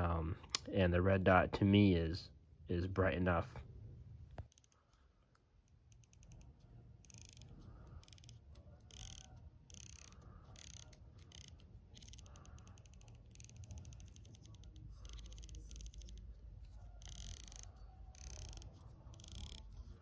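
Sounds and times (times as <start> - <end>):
scope turret detent clicks: 4.4 - 20.0.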